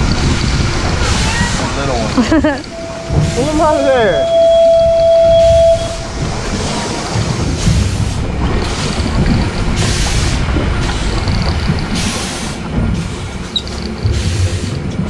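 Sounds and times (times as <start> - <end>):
water splashing against boat: 0.0 - 15.0
wind rumbling on microphone: 0.0 - 15.0
steady high tone: 2.7 - 7.2.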